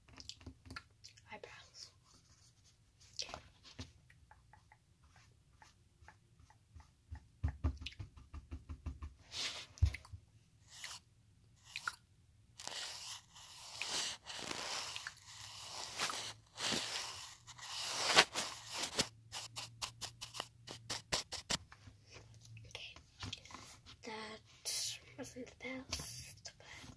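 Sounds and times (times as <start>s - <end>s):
brush strokes on microphone: 12.6s - 21.6s.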